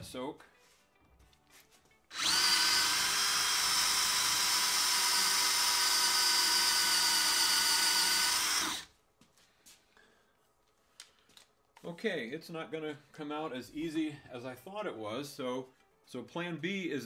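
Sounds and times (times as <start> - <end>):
cordless drill motor whine: 2.1 - 8.9.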